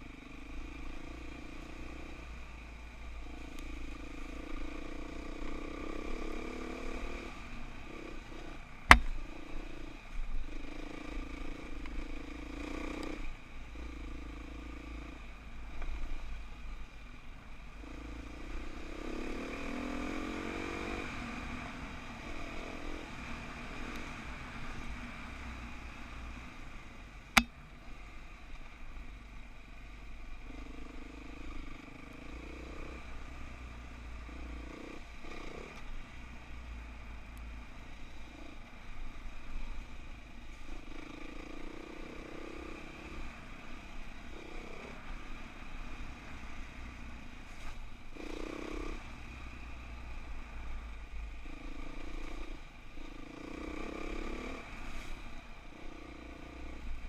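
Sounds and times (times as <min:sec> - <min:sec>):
sharp knocks: 0:08.9 - 0:09.2.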